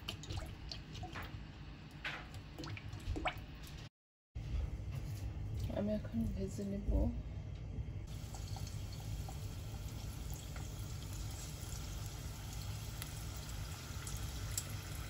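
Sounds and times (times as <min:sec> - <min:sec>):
chicken deep-frying in oil: 0:00.0 - 0:03.8, 0:08.0 - 0:15.0.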